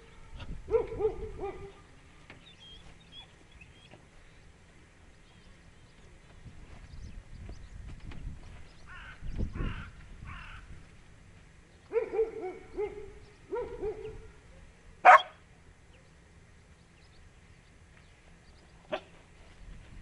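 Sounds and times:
dog barking: 0:00.7 - 0:01.8, 0:11.9 - 0:14.2, 0:15.0 - 0:15.4
dogs yowling: 0:00.7 - 0:01.8, 0:15.0 - 0:15.3.

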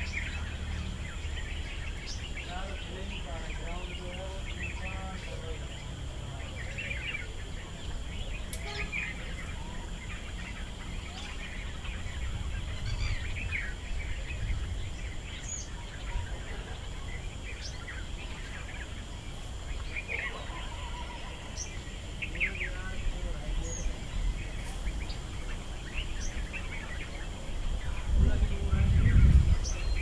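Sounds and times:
steady low rumble: 0:00.0 - 0:20.1, 0:21.6 - 0:30.0
bird chirps: 0:00.0 - 0:30.0.

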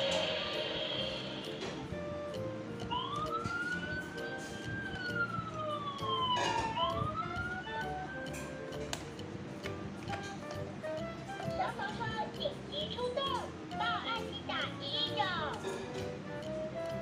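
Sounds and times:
toy siren wailing: 0:02.8 - 0:08.3.

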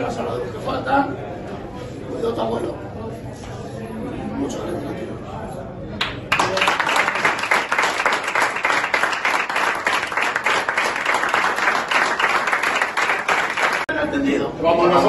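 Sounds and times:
crowd applauding: 0:06.0 - 0:13.9.

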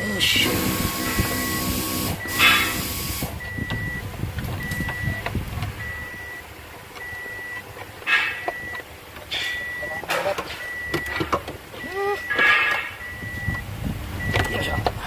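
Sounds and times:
electronic beeper tone: 0:00.1 - 0:04.0, 0:09.5 - 0:11.2, 0:11.8 - 0:13.6
short bursts of noise: 0:00.2 - 0:04.0.

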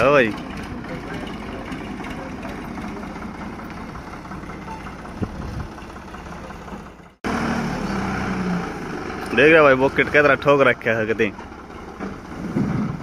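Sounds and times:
tractor diesel engine running: 0:00.0 - 0:13.0.

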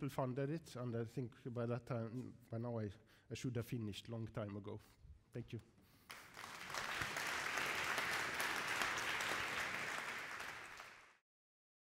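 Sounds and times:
audience applauding: 0:06.1 - 0:11.2.

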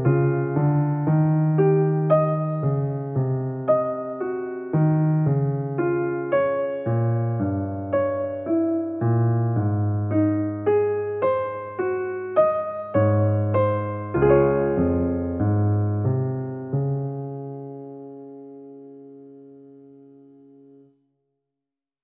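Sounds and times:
gentle piano-like keyboard melody: 0:00.0 - 0:21.0.

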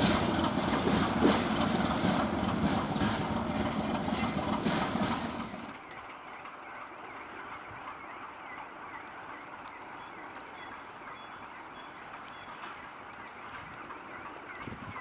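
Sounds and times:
boxcars rolling: 0:00.0 - 0:15.0
short wheel squeak: 0:00.7 - 0:03.4.

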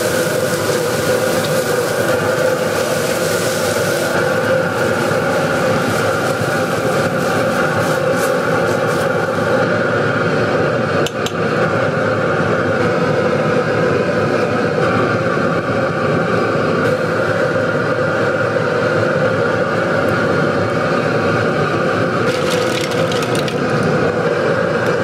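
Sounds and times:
gas burner roaring: 0:00.0 - 0:25.0
broth bubbling: 0:22.2 - 0:24.1.

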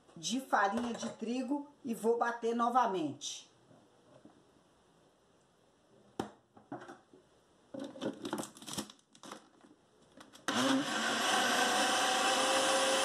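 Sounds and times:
blender motor running: 0:10.5 - 0:13.0.

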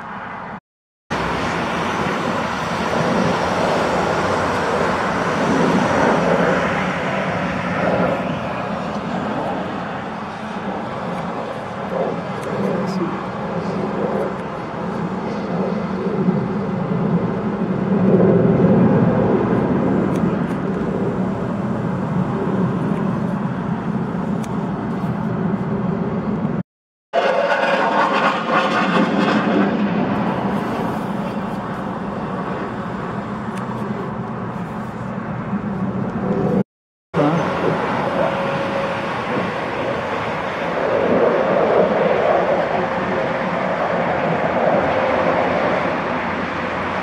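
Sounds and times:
engine running with hiss: 0:37.2 - 0:44.0.

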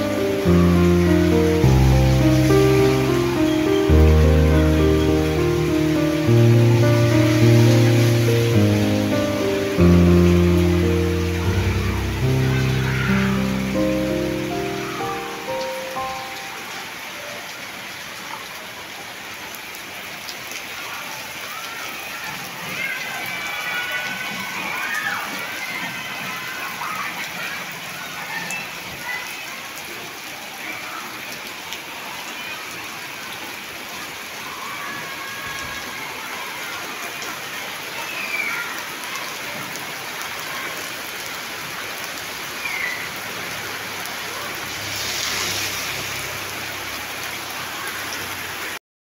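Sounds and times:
heavy rain pouring: 0:00.0 - 0:48.8.

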